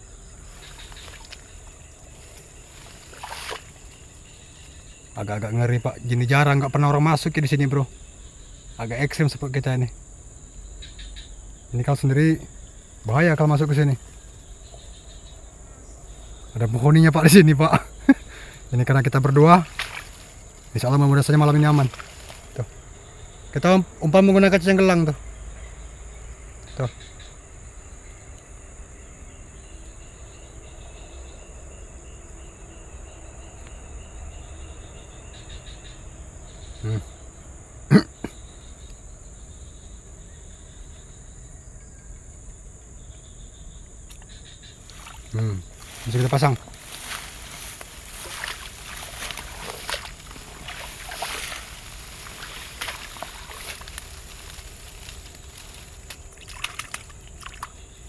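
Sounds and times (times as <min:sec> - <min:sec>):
insects shrilling: 0:00.0 - 0:25.9, 0:43.1 - 0:58.0
insect chirping call: 0:00.0 - 0:58.0
ferns rustling and snapping: 0:00.5 - 0:04.0, 0:19.5 - 0:22.7, 0:44.9 - 0:57.8
water sloshing: 0:00.5 - 0:04.7, 0:19.4 - 0:22.8, 0:44.8 - 0:57.8.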